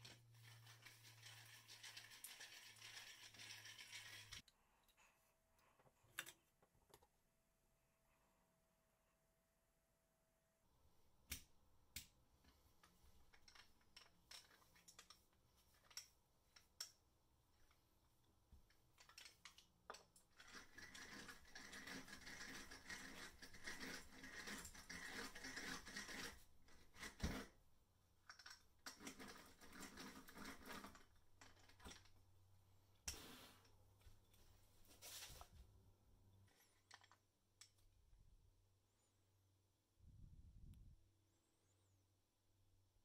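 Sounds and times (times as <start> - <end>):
hand drill whirring and rattling: 0.0 - 4.5, 19.0 - 27.6, 28.3 - 32.1.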